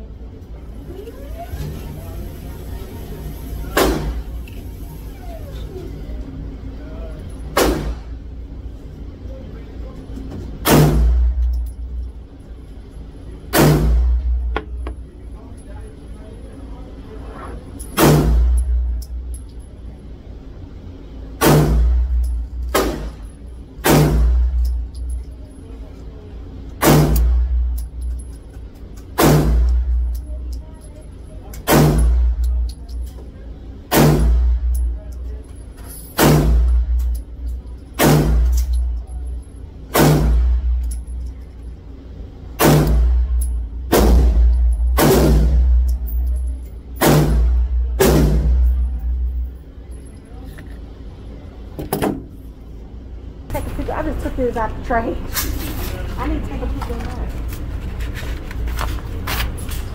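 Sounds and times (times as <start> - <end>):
steady low hum: 0.0 - 59.9
handgun shots echoing indoors: 3.7 - 4.3, 7.5 - 8.2, 10.6 - 11.8, 13.5 - 14.7, 17.8 - 19.2, 21.4 - 25.1, 26.8 - 28.1, 29.0 - 30.2, 31.5 - 33.1, 33.9 - 35.2, 36.0 - 37.2, 37.9 - 39.0, 39.9 - 41.1, 42.6 - 49.4.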